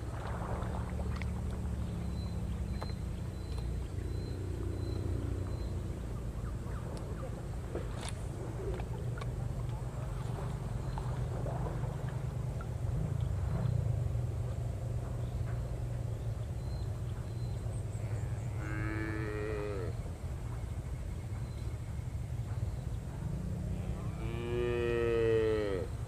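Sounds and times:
steady low rumble: 0:00.0 - 0:18.6, 0:19.9 - 0:24.4
cow mooing: 0:18.0 - 0:20.0, 0:23.7 - 0:26.0.

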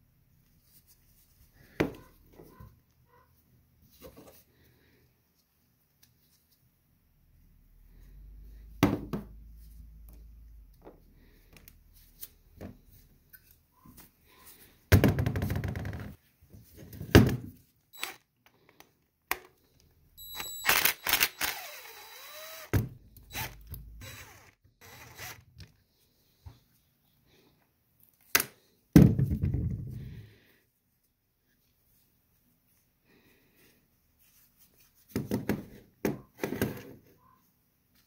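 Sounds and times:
cordless driver spinning screws: 0:20.3 - 0:25.5.

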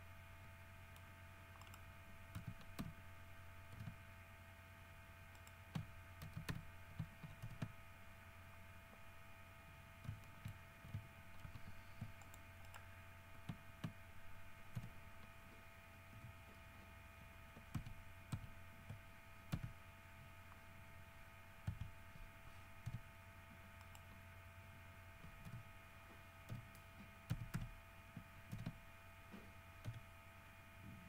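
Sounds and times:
steady hum: 0:00.0 - 0:31.0
mouse clicks: 0:00.9 - 0:01.8, 0:23.8 - 0:24.1.

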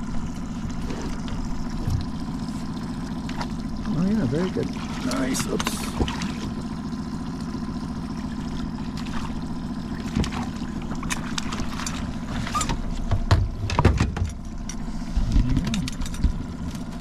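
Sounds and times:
water splashing: 0:00.0 - 0:13.3
outboard motor running: 0:00.0 - 0:17.0
knocks of net against boat: 0:10.0 - 0:14.4.

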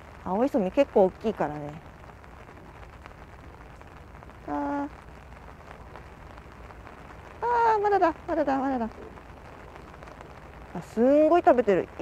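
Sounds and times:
light rain pattering: 0:00.0 - 0:12.0.

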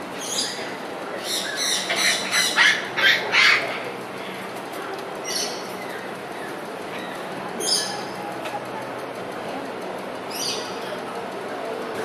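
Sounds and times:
steady background noise: 0:00.0 - 0:12.0
parrots squawking: 0:01.2 - 0:03.8.

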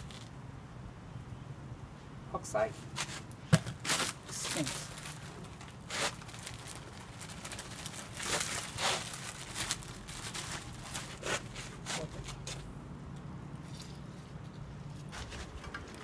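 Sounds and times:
cement scraping and rustling in bag: 0:03.0 - 0:12.5.

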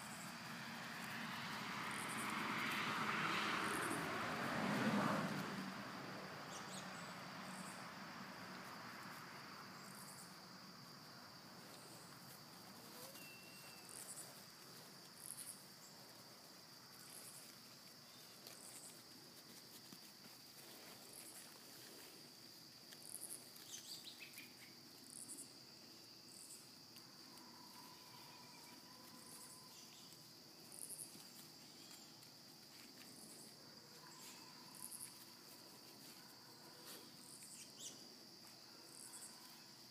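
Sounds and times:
distant engine hum: 0:00.0 - 0:22.3
insect chorus drone and chirps: 0:00.0 - 0:39.9.

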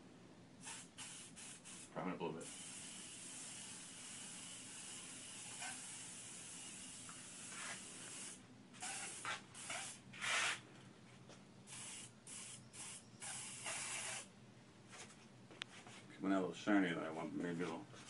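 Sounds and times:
aerosol spray hissing: 0:00.6 - 0:10.6, 0:11.7 - 0:14.3.

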